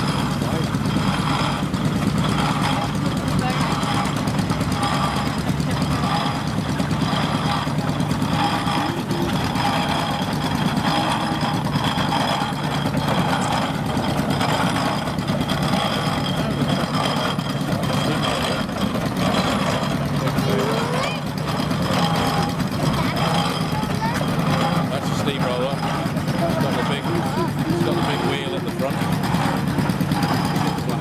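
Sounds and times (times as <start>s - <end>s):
steam traction engine rumbling: 0.0s - 31.0s.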